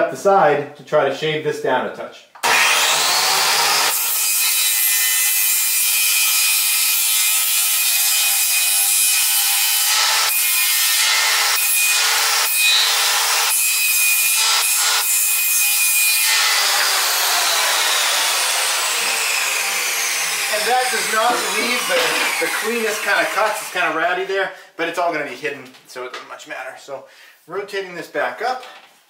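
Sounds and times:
circular saw cutting wood: 2.4s - 24.1s.

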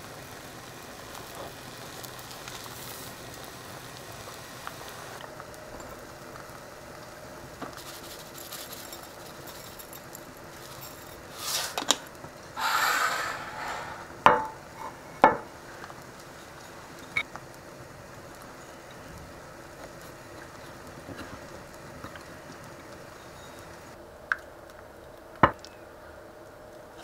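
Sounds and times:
ceramic dishes clinking: 14.2s - 15.4s.

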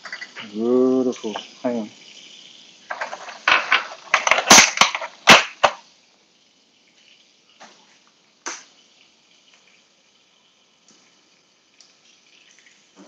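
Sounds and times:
kitchen items clattering: 0.0s - 1.6s, 2.9s - 5.8s
egg cracked against pan: 2.9s - 5.8s, 8.4s - 8.7s.

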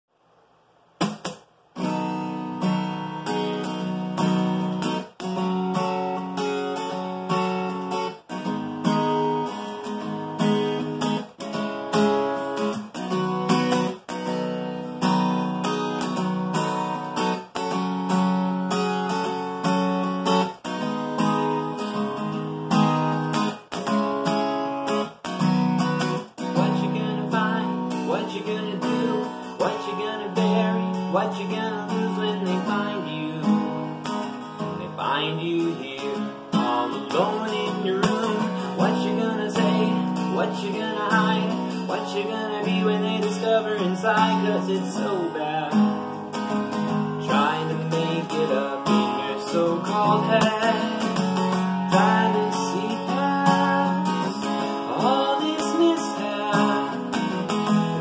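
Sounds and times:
acoustic guitar strumming: 0.9s - 58.0s.

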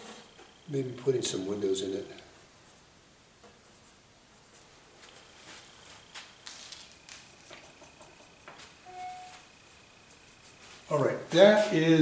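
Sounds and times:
paintbrush scratching on canvas: 2.3s - 11.8s.

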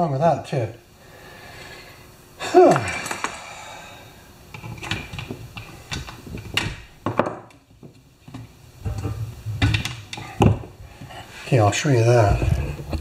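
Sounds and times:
tools tapping on wooden workbench: 5.9s - 10.7s.

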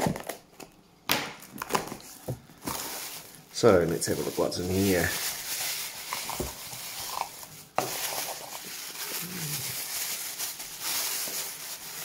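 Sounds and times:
paper and plastic bag rustling: 1.6s - 12.0s.

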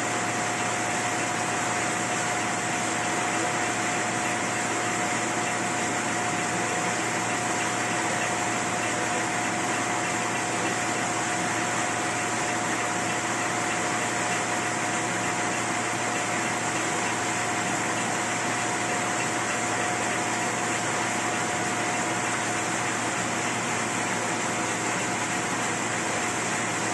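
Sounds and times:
mid-pitched machine whine: 0.0s - 26.9s.

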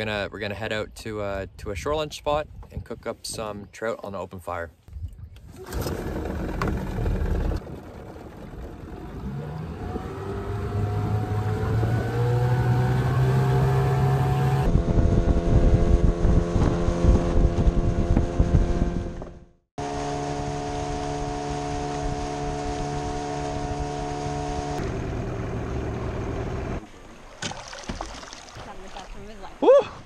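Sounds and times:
rush of wind and water: 4.9s - 19.0s, 19.9s - 24.8s, 26.8s - 30.0s
outboard motor running: 5.5s - 14.7s, 19.2s - 29.0s.

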